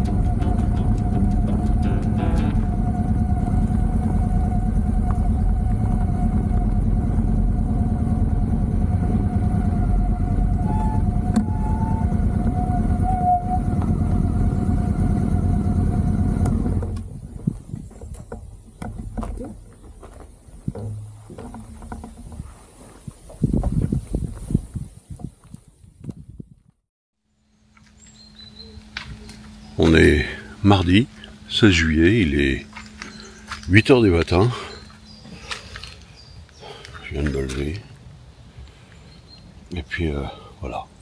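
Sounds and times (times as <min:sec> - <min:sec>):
thin steady whine: 0:00.0 - 0:17.6, 0:27.4 - 0:41.0
vehicle engine and road noise: 0:00.0 - 0:24.5, 0:27.3 - 0:40.8
knocks and rustles: 0:16.7 - 0:24.5.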